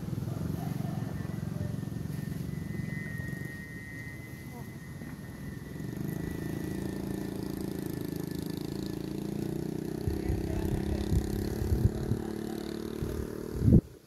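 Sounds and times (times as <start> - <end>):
small engine humming: 0.0 - 14.0.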